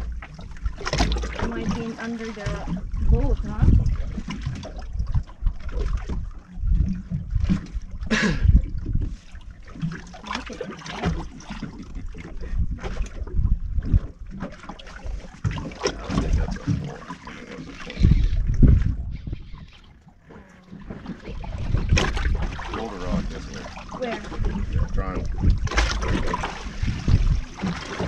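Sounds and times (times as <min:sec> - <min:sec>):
water lapping against boat hull: 0:00.0 - 0:28.0
wind buffeting microphone: 0:00.6 - 0:09.3, 0:11.1 - 0:14.4, 0:17.8 - 0:28.0.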